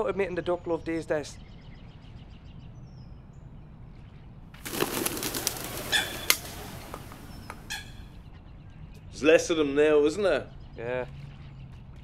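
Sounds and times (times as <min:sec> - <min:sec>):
bird wings flapping: 0:04.6 - 0:07.8.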